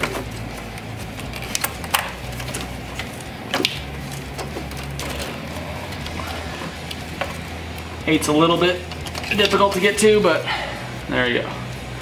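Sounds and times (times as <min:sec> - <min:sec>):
hands handling plastic parts: 0:00.0 - 0:07.9, 0:08.8 - 0:10.0
steady low hum: 0:00.0 - 0:12.0.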